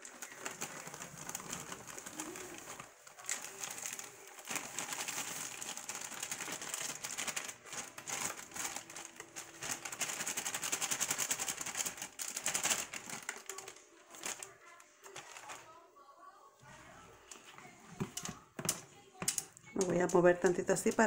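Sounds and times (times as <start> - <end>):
dry mix pouring out: 0.0 - 14.6
plastic bag crinkling: 0.0 - 15.8.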